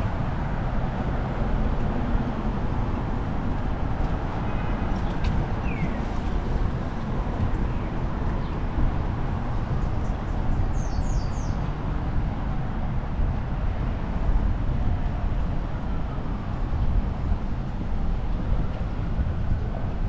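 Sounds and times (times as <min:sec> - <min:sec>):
traffic noise: 0:00.0 - 0:20.0.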